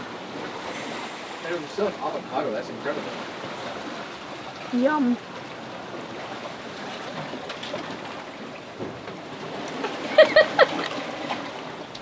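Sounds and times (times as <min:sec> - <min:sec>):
water rushing: 0:00.0 - 0:12.0
wind: 0:00.0 - 0:12.0.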